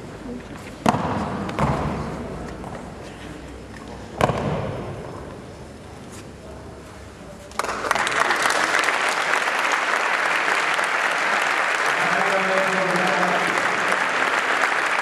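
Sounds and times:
audience applause: 0:07.6 - 0:15.0.

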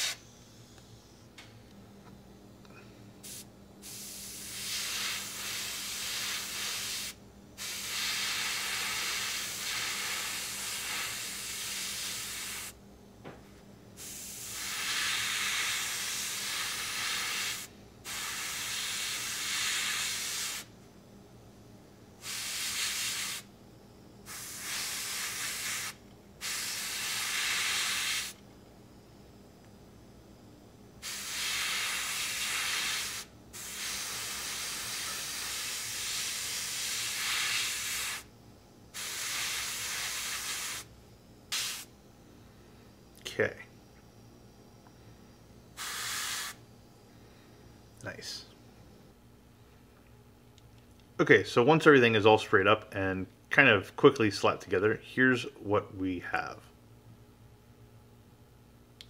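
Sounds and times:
airbrush spraying hiss: 0:00.0 - 0:00.2, 0:03.2 - 0:12.8, 0:14.0 - 0:20.7, 0:22.2 - 0:23.5, 0:24.2 - 0:28.4, 0:31.0 - 0:38.3, 0:38.9 - 0:40.9, 0:41.5 - 0:41.9, 0:45.8 - 0:46.6.

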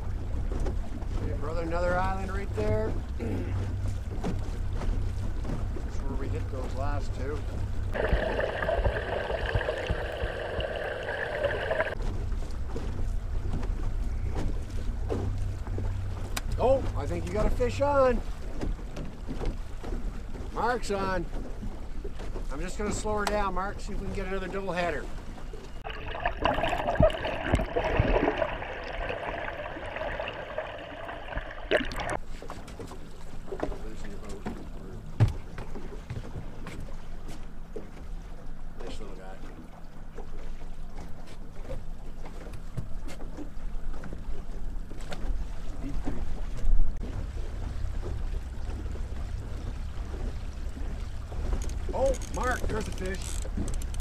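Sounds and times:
outboard motor low hum: 0:00.0 - 0:54.0
wind and water noise: 0:00.0 - 0:54.0
outboard motor underwater whine: 0:02.1 - 0:54.0
wind on microphone: 0:07.9 - 0:12.0
fish splashing at surface: 0:08.0 - 0:12.0, 0:25.8 - 0:32.2.

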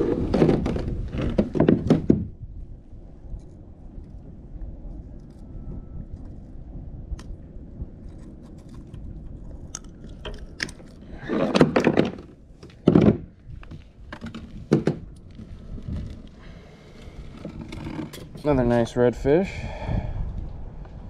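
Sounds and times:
gear knocking and rubbing in kayak: 0:00.0 - 0:02.4, 0:10.1 - 0:18.5
hull scraping dock piling: 0:00.0 - 0:02.4, 0:10.2 - 0:18.8
low steady rumble: 0:00.0 - 0:21.0.

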